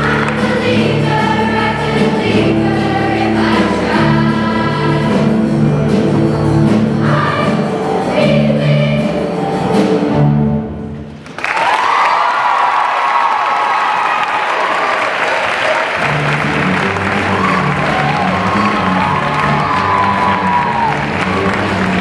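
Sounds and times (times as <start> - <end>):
choir singing in harmony: 0.0 - 10.4.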